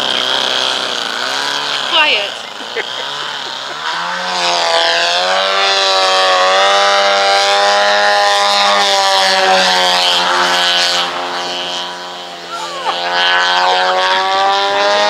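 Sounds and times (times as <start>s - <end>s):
model airplane engine drone: 0.0s - 15.0s.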